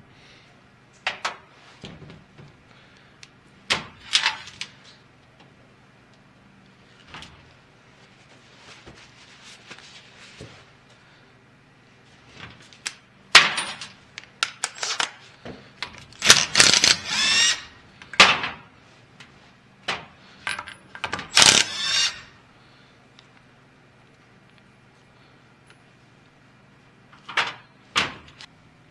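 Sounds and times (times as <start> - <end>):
power driver motor whirring: 16.3 - 17.7, 21.4 - 22.3.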